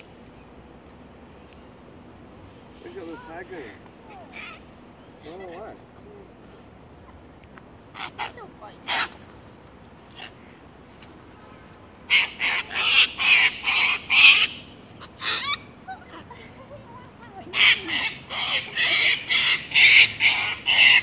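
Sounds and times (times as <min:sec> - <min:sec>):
cockatoos screeching: 0:07.9 - 0:09.2, 0:10.1 - 0:10.6, 0:12.1 - 0:16.3, 0:17.4 - 0:21.0.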